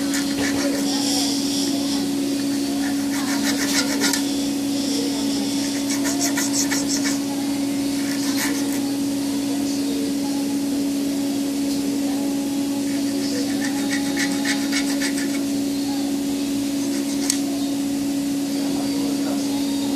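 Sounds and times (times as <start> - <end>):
steady hum: 0.0 - 19.9
metal blade scraping wire: 2.4 - 4.4, 5.3 - 7.3, 16.8 - 17.4.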